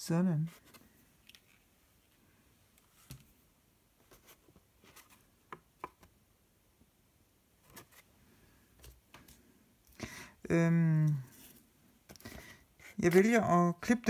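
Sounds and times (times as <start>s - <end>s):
cardstock sheets rustling: 4.0s - 5.3s.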